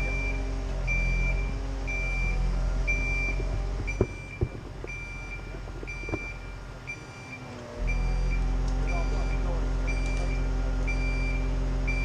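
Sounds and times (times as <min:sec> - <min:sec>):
crane warning beeper: 0:00.0 - 0:12.0
engine running: 0:00.0 - 0:12.0
sharp knocks: 0:03.4 - 0:05.0.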